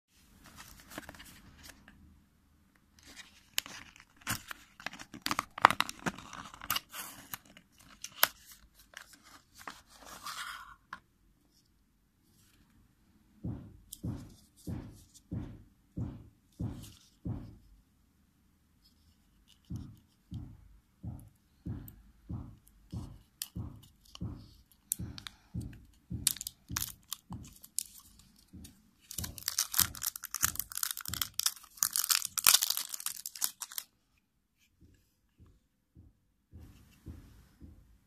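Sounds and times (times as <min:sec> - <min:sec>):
soft low thuds: 0:13.4 - 0:17.7, 0:34.8 - 0:38.0
plastic wrapping crackling: 0:26.2 - 0:33.9.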